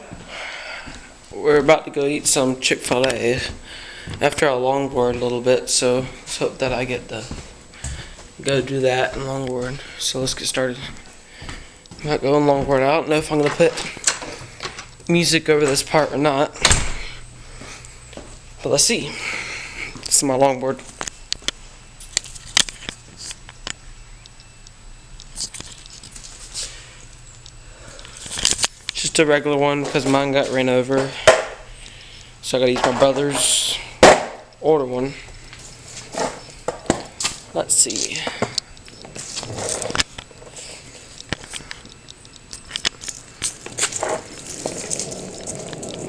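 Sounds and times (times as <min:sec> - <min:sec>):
longboard wheels rolling on concrete: 0:43.5 - 0:46.0.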